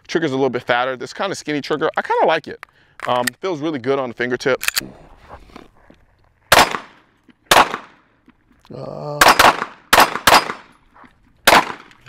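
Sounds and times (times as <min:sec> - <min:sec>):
pistol shots with echo: 0:06.5 - 0:08.0, 0:09.2 - 0:10.8, 0:11.4 - 0:12.0.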